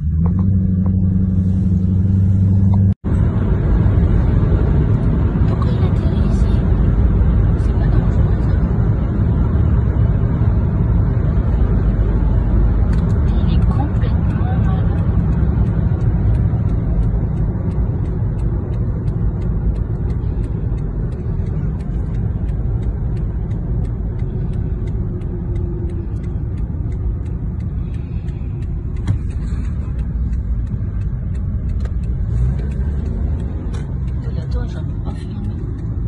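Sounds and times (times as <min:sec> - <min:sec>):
road rumble inside car: 0:00.0 - 0:36.0.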